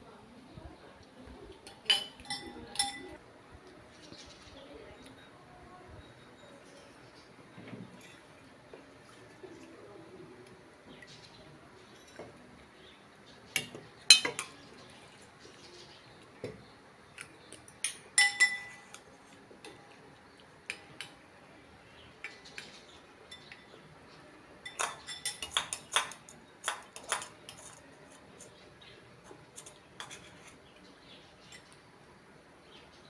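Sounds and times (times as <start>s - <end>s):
cutlery clinking against bowls: 1.6s - 3.2s, 11.9s - 12.4s, 13.5s - 14.7s, 17.2s - 19.8s, 22.2s - 23.8s, 24.6s - 28.6s, 29.2s - 30.7s.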